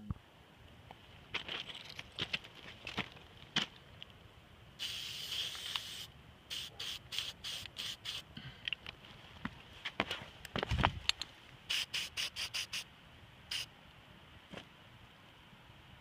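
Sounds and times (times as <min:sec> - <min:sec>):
aerosol spray can hissing: 0:04.8 - 0:08.3, 0:11.7 - 0:12.8.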